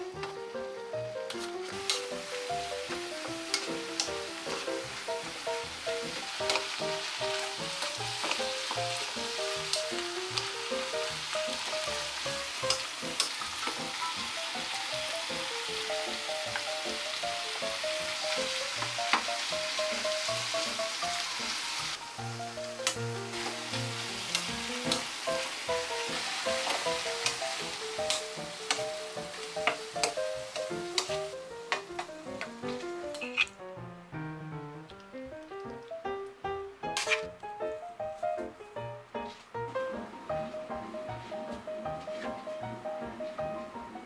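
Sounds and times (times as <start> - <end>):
vegetables sizzling in pan: 0.9 - 33.4, 36.8 - 37.4
spatula clicking against pan: 3.5 - 4.2, 6.4 - 6.7, 12.6 - 13.8, 24.3 - 25.0, 28.0 - 28.9, 29.6 - 32.5.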